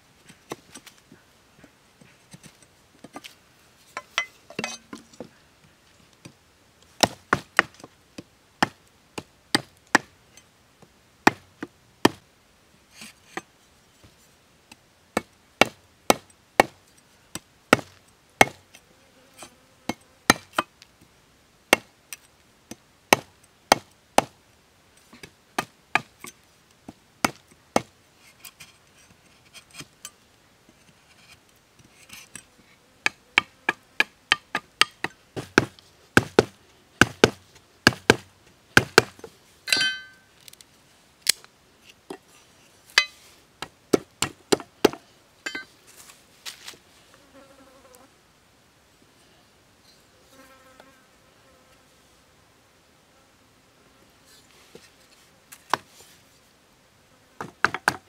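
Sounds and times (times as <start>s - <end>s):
machete chopping wood: 17.7s - 18.6s, 20.3s - 20.7s, 33.4s - 40.2s.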